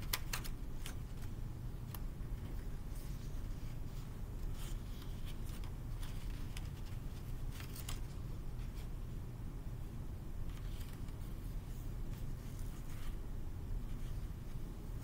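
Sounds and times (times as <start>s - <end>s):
paper rustling and crinkling: 0.0s - 8.9s, 10.4s - 13.2s
low room hum: 0.0s - 15.0s.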